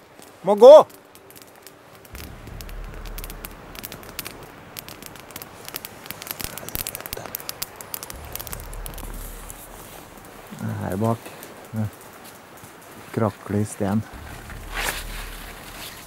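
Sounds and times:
campfire crackling and popping: 0.0s - 16.0s
low rumble: 2.1s - 6.4s, 8.1s - 11.4s, 14.1s - 16.0s.

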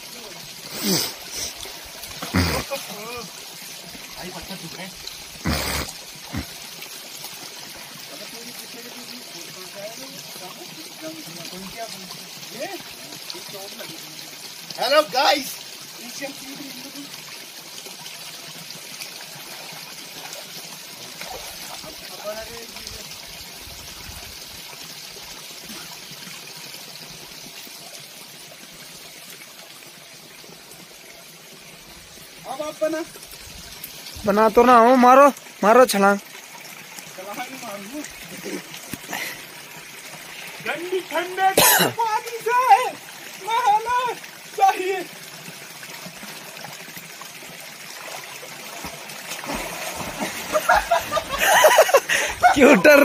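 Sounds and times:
stream running over rocks: 0.0s - 53.0s
water splashing from swimming: 0.6s - 8.4s, 36.5s - 53.0s.

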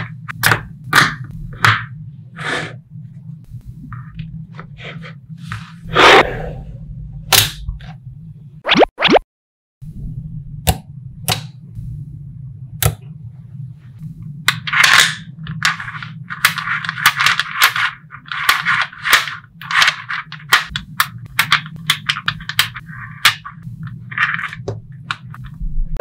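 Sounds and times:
low steady hum: 0.0s - 8.6s, 9.8s - 26.0s
magnetic balls clicking together: 14.5s - 25.6s.

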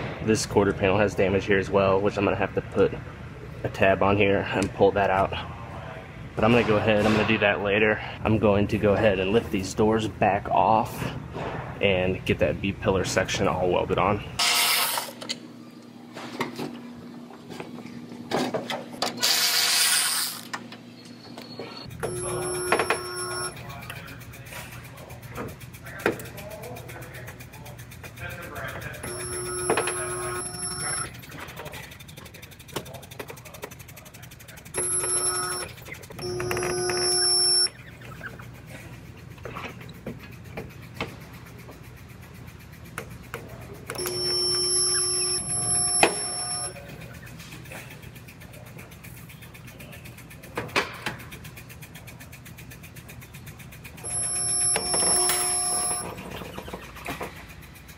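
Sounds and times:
spot welder electric hum: 21.9s - 23.6s, 29.0s - 31.1s, 34.8s - 37.7s, 43.9s - 46.8s, 53.9s - 56.2s
electric ratchet whirring: 43.9s - 46.8s, 53.6s - 56.0s.

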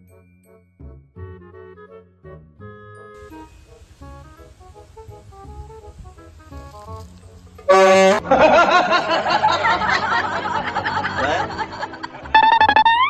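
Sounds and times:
soft music: 0.0s - 13.0s
toy trumpet horn blast: 7.7s - 8.2s, 12.3s - 13.0s
people laughing: 8.2s - 12.7s.

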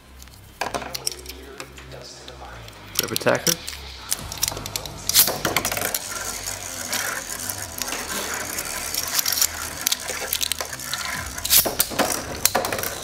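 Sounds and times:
ratcheting clicks of ripcord: 2.6s - 13.0s
spinning top on plastic floor: 2.7s - 13.0s.

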